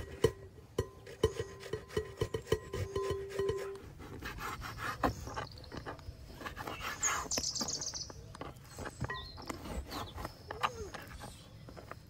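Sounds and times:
bird chirping: 4.4s - 12.0s
tomato scraping on box grater: 9.4s - 11.4s.

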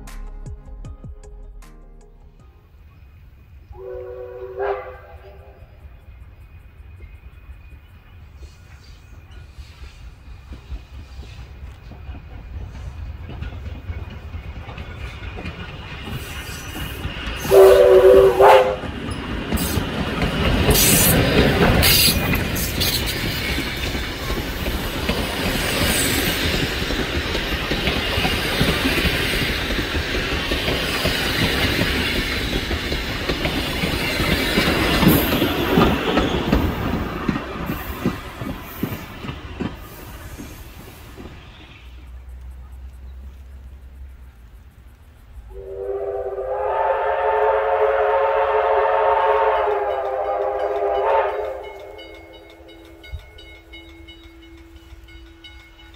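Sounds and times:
train passing: 0.0s - 55.9s
steam locomotive whistle: 3.6s - 5.8s, 16.1s - 19.8s, 20.6s - 24.4s, 45.5s - 55.2s
wheels clicking over rail joints: 10.4s - 45.4s.

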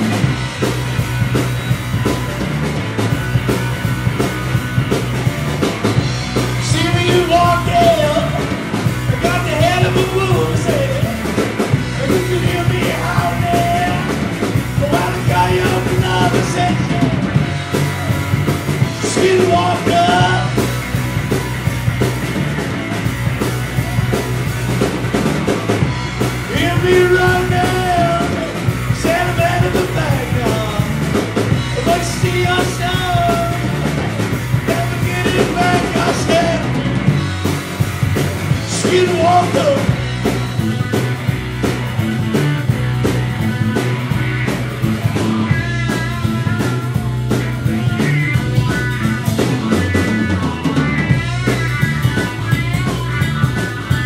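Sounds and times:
bass guitar: 0.0s - 54.0s
drum kit: 0.0s - 54.0s
electric guitar: 0.0s - 54.0s
man singing into microphone: 6.6s - 8.4s, 9.2s - 11.1s, 12.0s - 14.1s, 14.8s - 17.2s, 19.0s - 20.6s, 26.5s - 31.0s, 31.8s - 33.7s, 34.7s - 36.8s, 38.6s - 40.0s.

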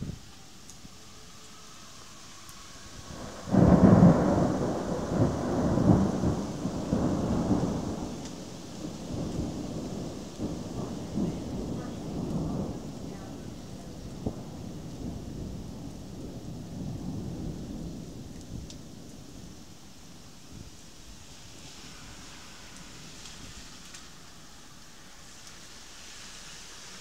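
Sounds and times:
rolling thunder rumble: 0.0s - 27.0s
thunder crack: 2.8s - 19.6s.

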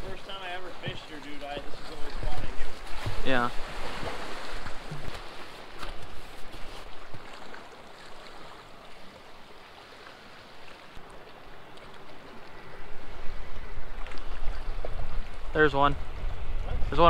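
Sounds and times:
lake water lapping: 0.0s - 17.0s
wind buffeting microphone: 12.6s - 17.0s.

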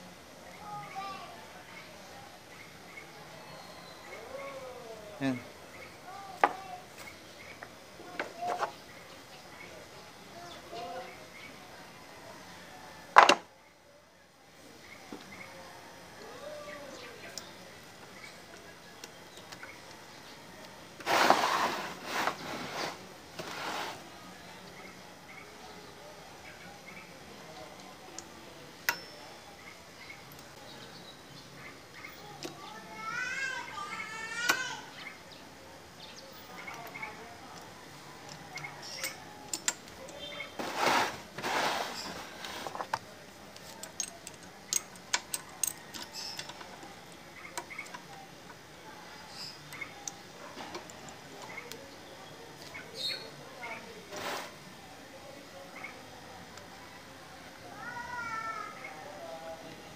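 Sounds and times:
metal part scraping on plastic crate: 21.0s - 24.0s, 40.6s - 43.0s.

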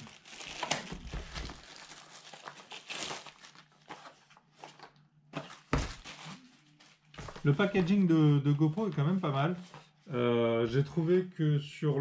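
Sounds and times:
plastic wrapping crinkling and tearing: 0.0s - 5.0s, 5.6s - 7.1s.

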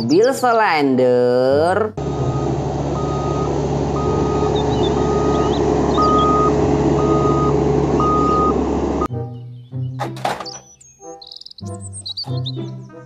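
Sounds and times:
road roller running: 2.0s - 9.1s
backup alarm beeping: 2.1s - 9.1s.

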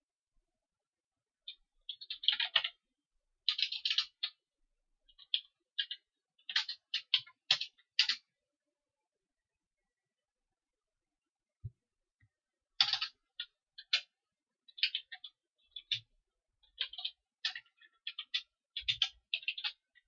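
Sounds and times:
keyboard typing: 1.4s - 2.8s, 3.4s - 4.4s, 5.1s - 8.4s, 12.8s - 16.1s, 16.7s - 20.0s.

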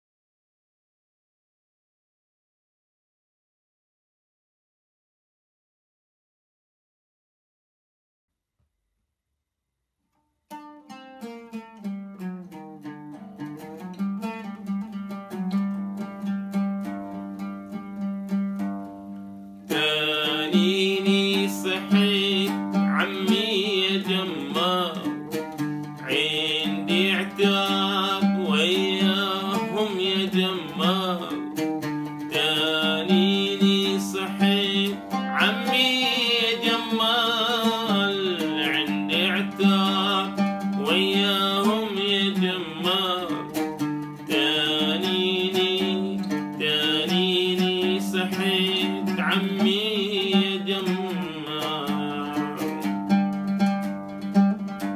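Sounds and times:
oud plucked: 10.5s - 54.9s
man singing: 19.7s - 53.0s.

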